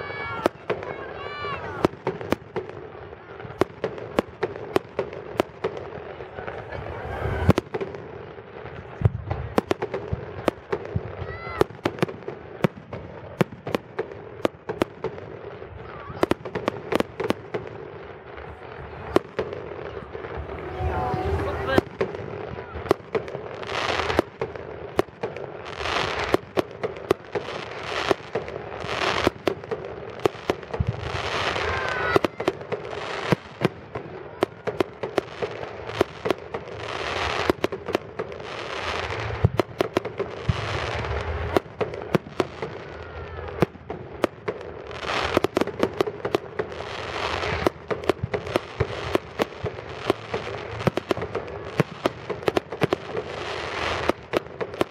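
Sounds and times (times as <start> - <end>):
fireworks bangs: 0.0 - 54.9
fireworks hissing: 3.4 - 12.0.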